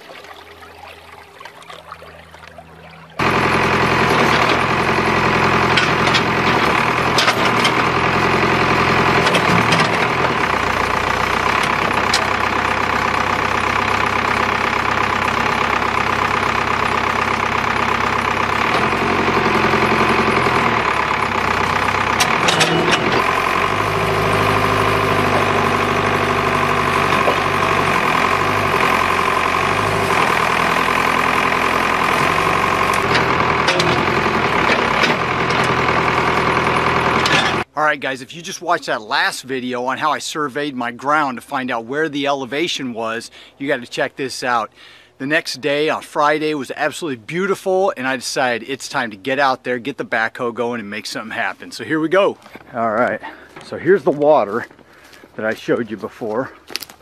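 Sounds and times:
backhoe engine running: 0:00.0 - 0:43.6, 0:48.0 - 0:57.0.

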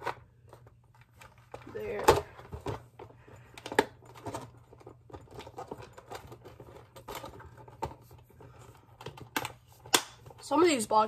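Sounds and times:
plastic boxes clicking and knocking: 0:00.0 - 0:10.7.

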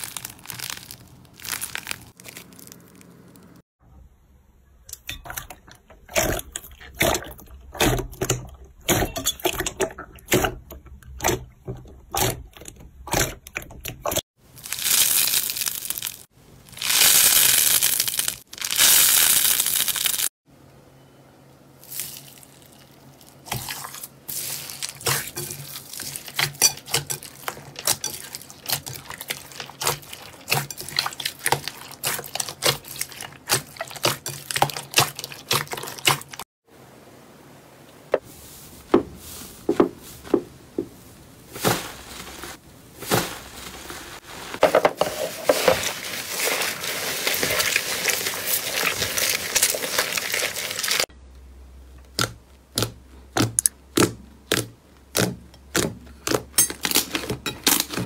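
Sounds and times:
slime squishing and popping: 0:00.0 - 0:03.5, 0:52.1 - 0:57.3
slime stretching with hissy crackling: 0:00.0 - 0:03.6, 0:14.5 - 0:20.3.

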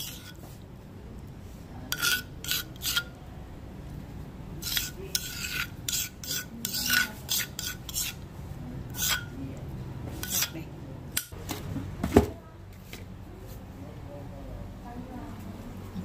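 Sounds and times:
utensil scraping a dish: 0:00.0 - 0:00.6, 0:01.8 - 0:03.2, 0:04.6 - 0:08.2, 0:08.9 - 0:09.4, 0:10.1 - 0:11.3.

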